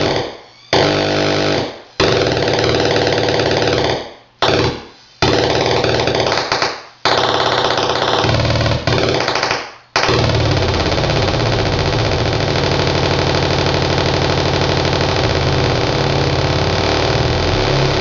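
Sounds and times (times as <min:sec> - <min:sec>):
harsh buzzing synth tone: 0:00.0 - 0:03.8, 0:10.1 - 0:18.0.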